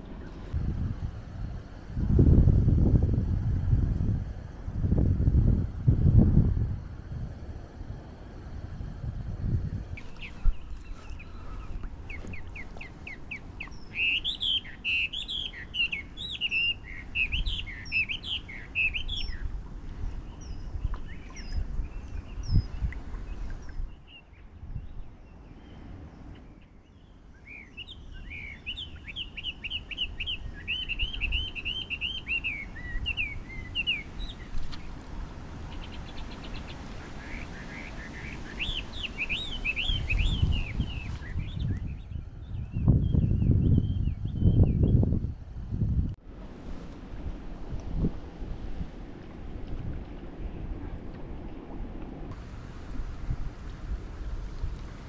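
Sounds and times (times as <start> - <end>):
steady low rumble: 0.0 - 12.2, 40.2 - 55.0
songbird chirping: 9.7 - 35.0, 35.7 - 45.2.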